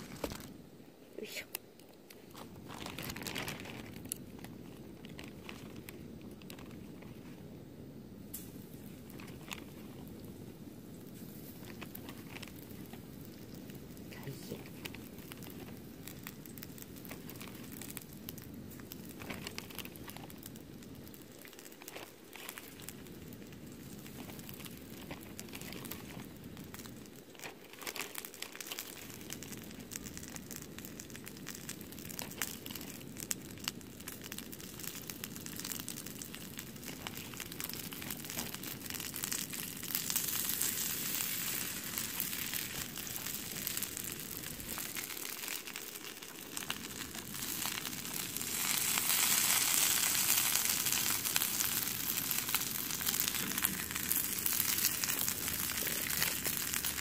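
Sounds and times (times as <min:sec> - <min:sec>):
shrimp sizzling in a pan: 0:08.2 - 0:57.0.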